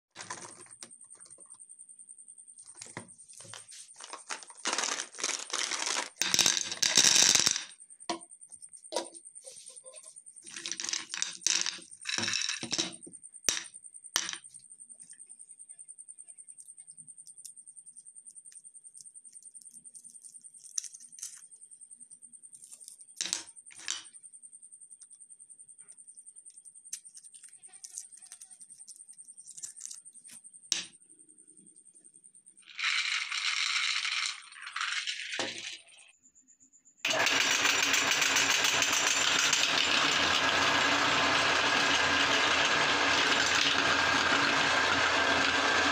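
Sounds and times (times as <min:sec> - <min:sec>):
chocolate balls rattling in jar: 0:00.1 - 0:00.8, 0:04.0 - 0:07.8, 0:10.5 - 0:13.0, 0:32.7 - 0:36.0, 0:37.1 - 0:45.9
foil crinkling: 0:00.2 - 0:00.7, 0:03.5 - 0:06.2.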